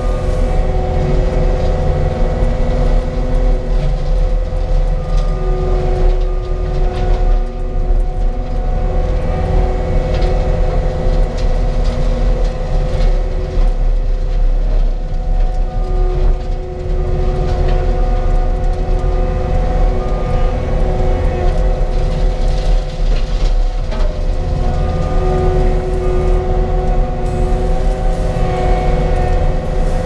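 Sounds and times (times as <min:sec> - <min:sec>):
loader engine at high throttle: 0:00.0 - 0:30.0.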